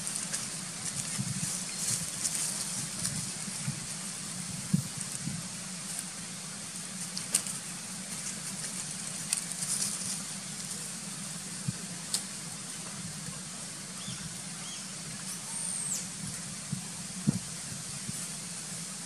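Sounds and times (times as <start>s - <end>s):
dry leaves crackling and rustling: 0.0s - 13.4s
outdoor background hiss: 0.0s - 19.0s.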